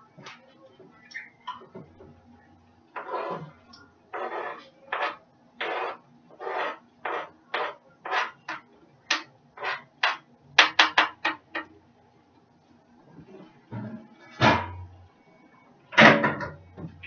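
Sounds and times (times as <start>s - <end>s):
kitchen utensil scraping and knocking: 3.0s - 3.6s, 4.2s - 11.7s.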